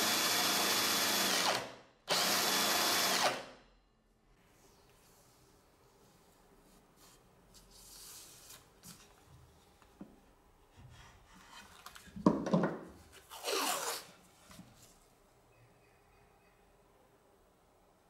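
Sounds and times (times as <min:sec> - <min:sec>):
tape ripping off roll: 0:13.2 - 0:14.2.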